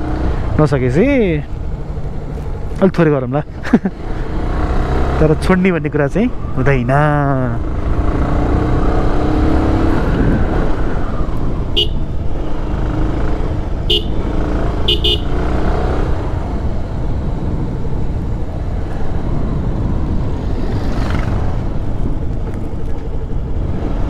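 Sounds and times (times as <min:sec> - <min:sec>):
wind rush: 0:07.9 - 0:14.6, 0:15.6 - 0:24.0
motorcycle engine running: 0:11.7 - 0:15.5
horn short beeps: 0:13.9 - 0:14.2, 0:14.8 - 0:15.4.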